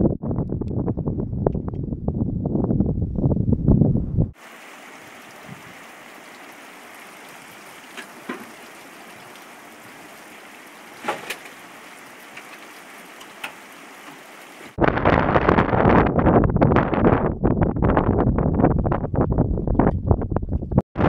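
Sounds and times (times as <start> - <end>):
rushing river water: 4.4 - 14.8.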